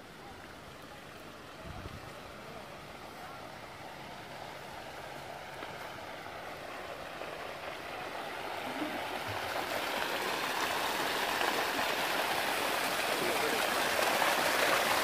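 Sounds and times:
running water rushing: 0.0s - 15.0s.

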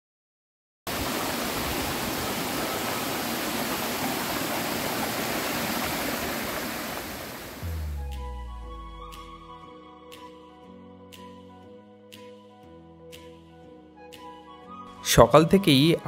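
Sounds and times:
stream rushing over rocks: 0.9s - 7.6s
music with low note: 7.6s - 13.3s.

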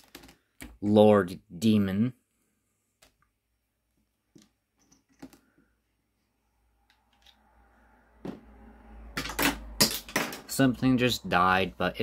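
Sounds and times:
low hum: 6.4s - 10.5s.

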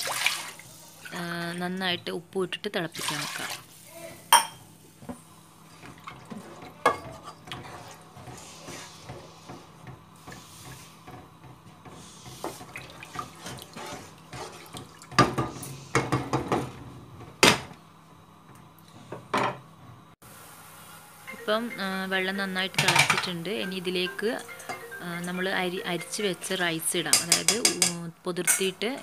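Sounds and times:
liquid sloshing: 12.2s - 15.4s
spatula knocking against pot: 27.1s - 28.0s.

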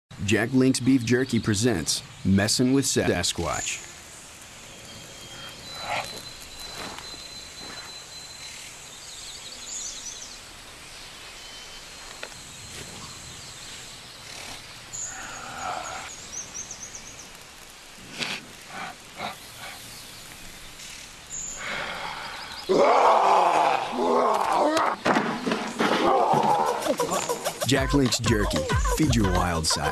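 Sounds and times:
faint background hiss: 0.1s - 22.7s
birds chirping in trills: 0.2s - 29.9s.

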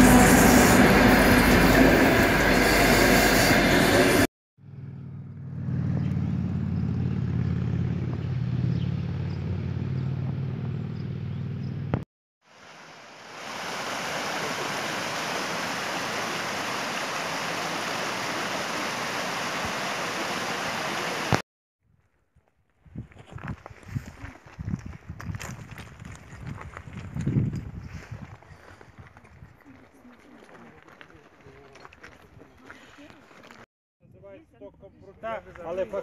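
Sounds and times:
stream rushing over rocks: 12.5s - 21.4s.

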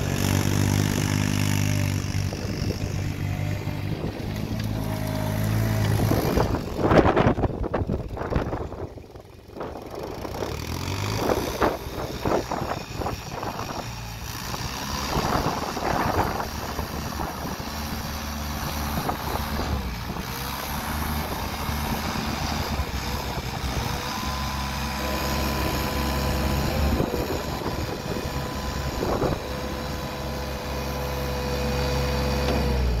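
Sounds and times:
diesel engine running: 0.0s - 33.0s.

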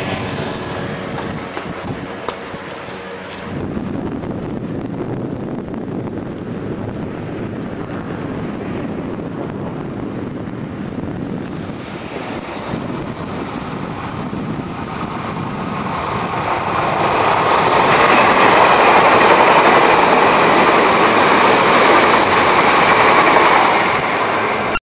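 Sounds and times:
electric train passing on rails: 0.0s - 24.8s.

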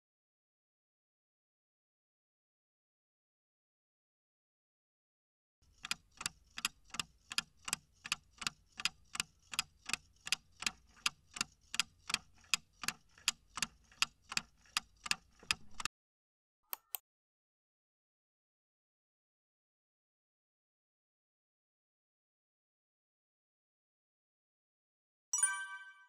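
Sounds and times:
clock ticking: 5.6s - 15.9s.

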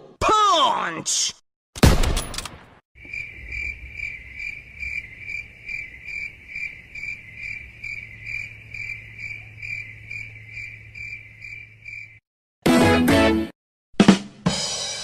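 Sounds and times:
crickets chirping: 3.0s - 12.2s.

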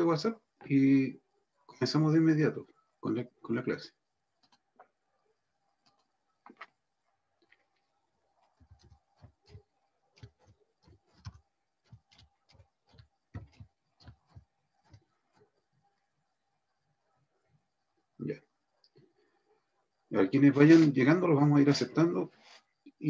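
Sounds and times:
faint typing: 4.3s - 4.9s, 8.4s - 15.8s.

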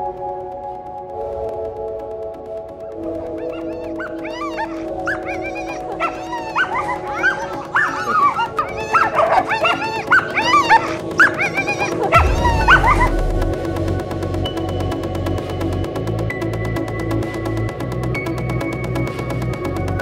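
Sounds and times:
background music with held notes: 0.0s - 20.0s
dogs yipping and whining: 3.3s - 13.8s.

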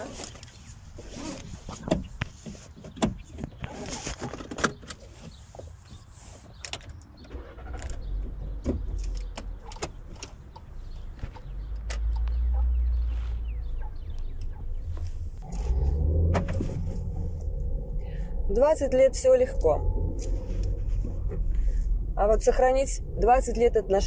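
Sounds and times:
car engine rumbling: 0.0s - 24.0s
clicks and knocks in car cabin: 1.8s - 5.4s, 8.2s - 12.6s.

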